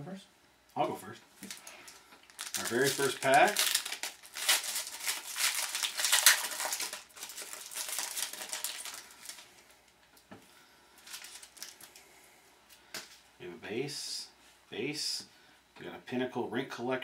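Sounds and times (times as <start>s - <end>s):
wrapper crinkling and tearing: 1.4s - 9.7s, 11.0s - 12.0s.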